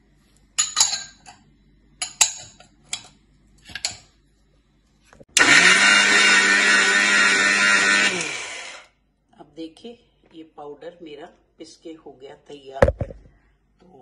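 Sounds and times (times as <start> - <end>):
electric grinder running: 5.4 - 8.9.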